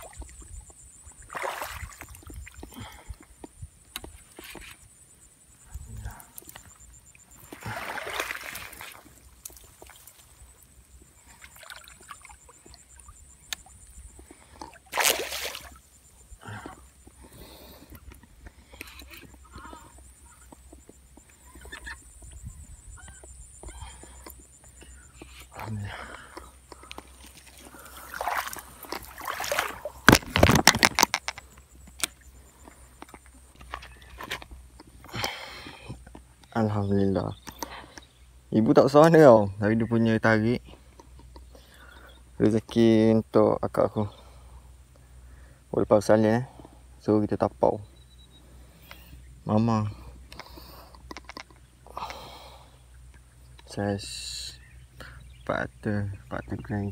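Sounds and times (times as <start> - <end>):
fish splashing in water: 1.2 - 2.6, 7.4 - 10.1, 11.3 - 13.1, 14.7 - 15.8, 27.4 - 30.8.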